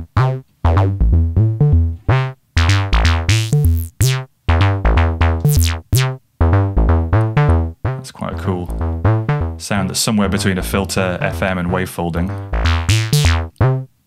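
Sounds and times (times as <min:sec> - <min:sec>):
synthesizer bass line: 0:00.0 - 0:13.9.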